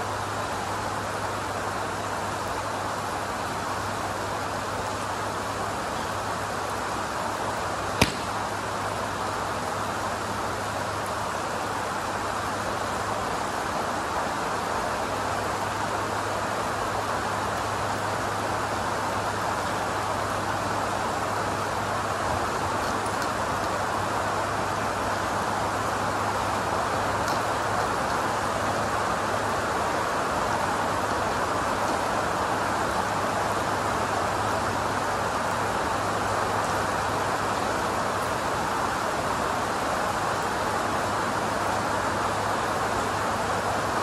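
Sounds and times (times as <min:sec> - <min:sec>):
rain hiss: 0:00.0 - 0:44.0
golf club striking ball: 0:08.0 - 0:08.5.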